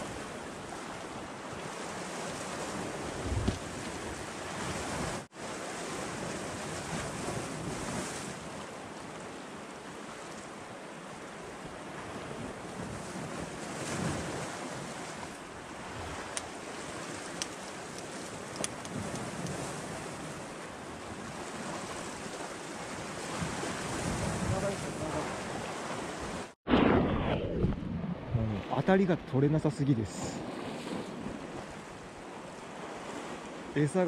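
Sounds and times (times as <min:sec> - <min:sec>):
wind on microphone: 0:00.0 - 0:05.3, 0:11.8 - 0:29.3
waves breaking against rocks: 0:00.0 - 0:26.6.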